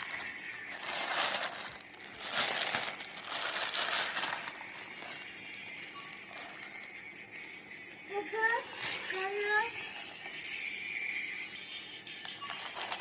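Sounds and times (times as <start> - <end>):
plastic bag crinkling: 0.0 - 7.0, 12.4 - 13.0.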